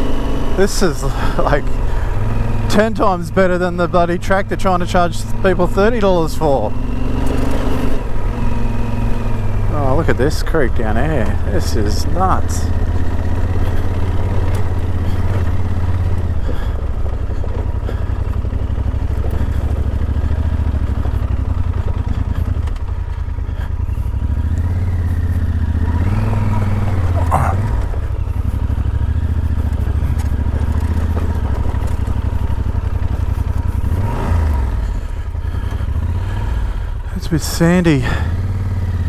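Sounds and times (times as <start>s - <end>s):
motorcycle engine running: 0.0s - 39.0s.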